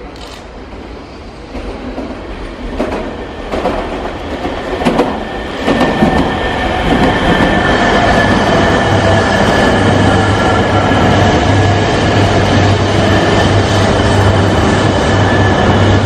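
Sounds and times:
steady train whine: 0.0 - 16.0
train wheels rumbling on rail: 0.0 - 16.0.

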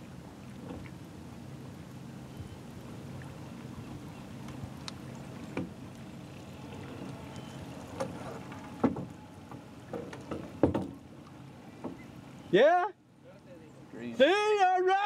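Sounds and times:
motorboat engine running: 0.0 - 12.5
sharp knocks: 9.9 - 11.0.

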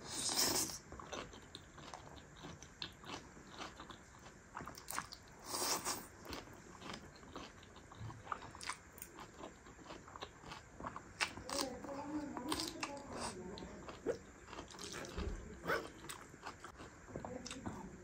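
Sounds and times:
wet chewing: 0.1 - 17.9
slurping noodles: 5.4 - 6.1.

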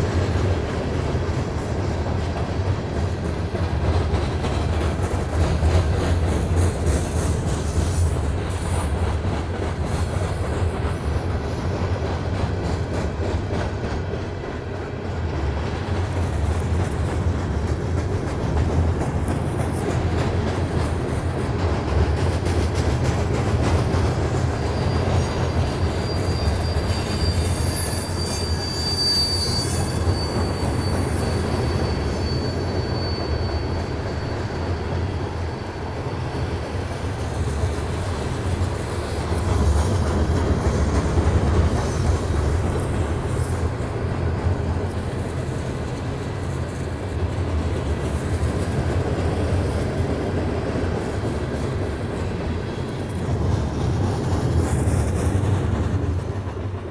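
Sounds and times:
train wheels rumbling on rail: 0.0 - 56.9
high thin wheel squeal: 24.4 - 36.8, 38.9 - 43.8.

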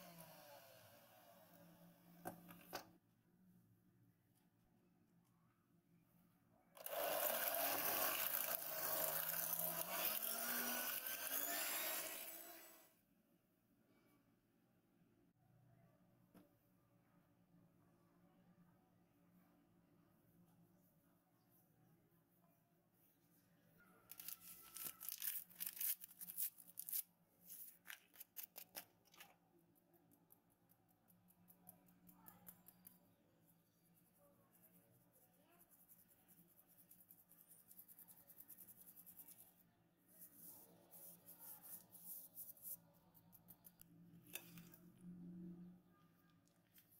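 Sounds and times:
electric hand mixer whirring: 0.0 - 1.1, 6.8 - 12.9.

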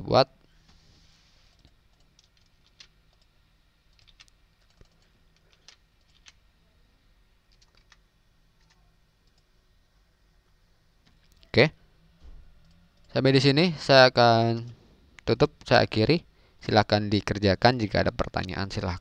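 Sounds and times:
mouse and keyboard clicks: 3.9 - 6.4.

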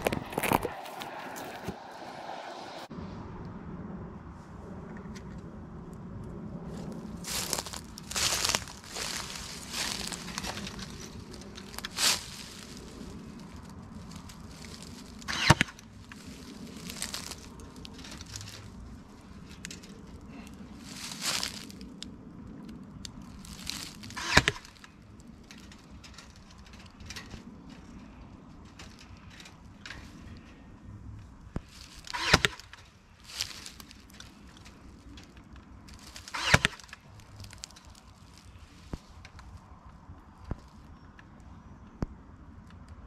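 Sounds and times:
dry leaves crunching underfoot: 0.0 - 2.0, 6.7 - 22.1, 23.1 - 30.3, 31.6 - 39.6
wire being handled: 7.3 - 30.8, 31.5 - 41.0.

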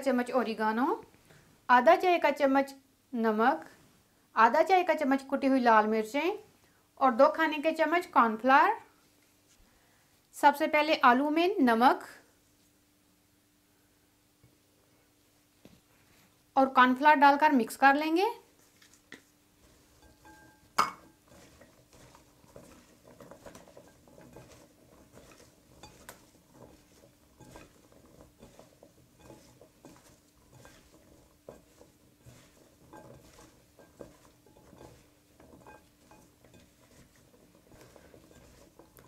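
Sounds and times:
potato sticks rustling in bowl: 17.7 - 39.0.

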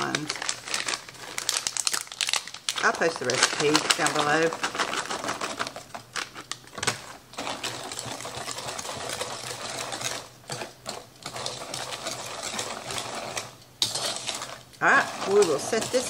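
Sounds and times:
plastic bag crinkling: 0.0 - 16.0
whisk clicking against plastic bowl: 7.4 - 16.0.

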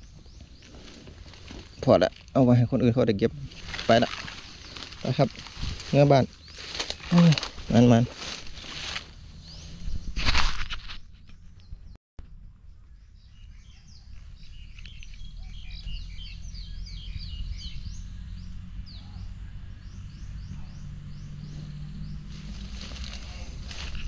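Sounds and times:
small birds chirping: 0.0 - 10.3, 11.2 - 24.0
low steady rumble: 0.0 - 24.0.

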